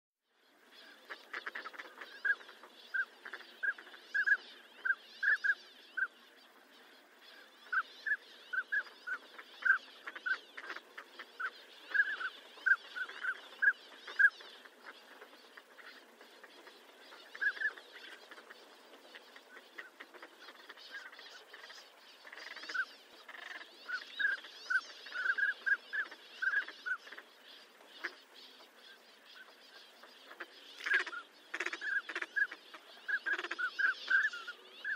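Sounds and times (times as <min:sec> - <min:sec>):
faint steady hiss: 0:00.2 - 0:34.9
duck calls: 0:30.3 - 0:34.9.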